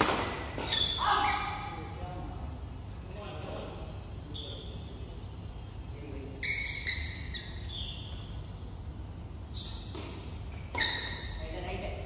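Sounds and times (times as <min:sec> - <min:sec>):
low steady hum: 0:00.0 - 0:12.0
sports shoes squeaking on floor: 0:00.5 - 0:01.8, 0:04.3 - 0:04.9, 0:06.3 - 0:08.4, 0:09.4 - 0:11.5.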